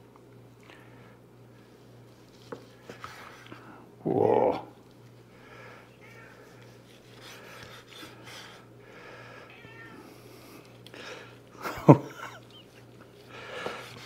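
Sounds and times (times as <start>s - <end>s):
cat meowing: 6.0s - 6.6s, 9.5s - 10.2s.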